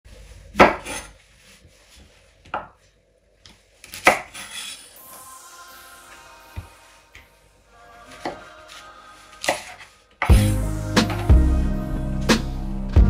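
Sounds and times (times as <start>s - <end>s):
music: 5.0s - 13.0s.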